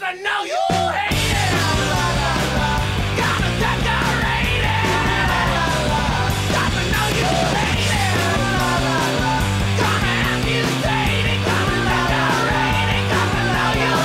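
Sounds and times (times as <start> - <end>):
shouted rock vocals: 0.0 - 14.0
bass line: 1.0 - 14.0.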